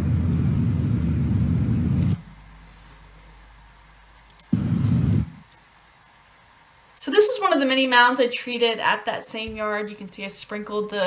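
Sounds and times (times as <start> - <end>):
low outdoor rumble: 0.0 - 5.5.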